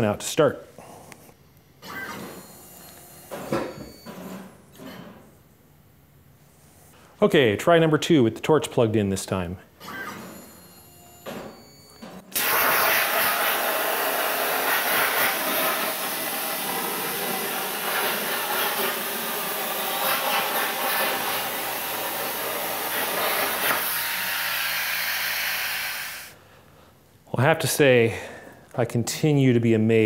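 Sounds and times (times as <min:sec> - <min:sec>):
plasma cutter arc hissing: 0:12.4 - 0:26.3.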